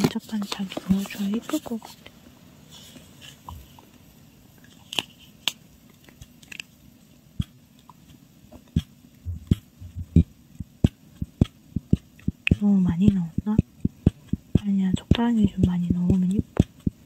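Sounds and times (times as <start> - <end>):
plastic nozzle tapping a mold: 8.8 - 17.0.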